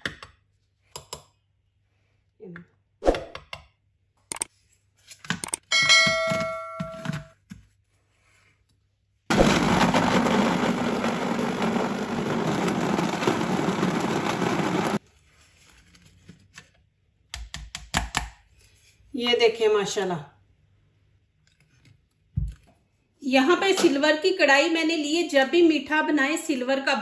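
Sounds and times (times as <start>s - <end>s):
short ringing ding: 5.7s - 7.0s
electric blender running: 9.3s - 15.0s.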